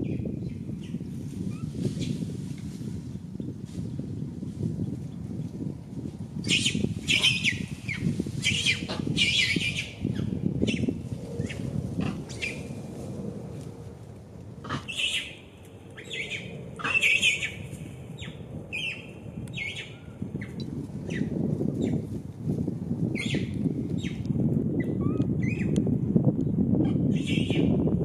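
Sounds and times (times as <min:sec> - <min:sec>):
baby monkey squealing: 0:06.4 - 0:09.9, 0:26.9 - 0:27.7.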